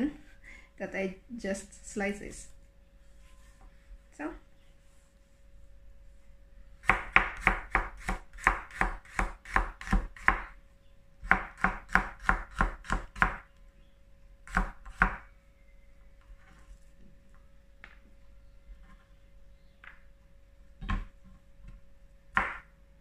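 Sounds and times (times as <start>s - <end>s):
knife chopping on cutting board: 6.8s - 10.4s.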